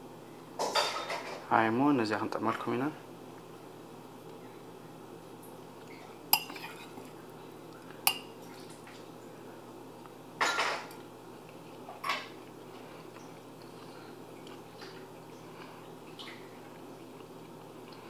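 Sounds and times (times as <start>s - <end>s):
spoon clinking ceramic bowl: 6.4s - 6.9s, 8.1s - 8.3s.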